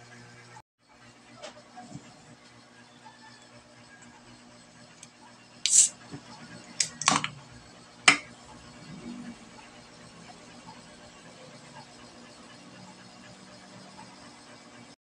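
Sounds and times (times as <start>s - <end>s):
can opening hiss: 5.7s - 5.9s
can tab clicks and snaps: 5.7s - 5.9s, 6.8s - 7.3s.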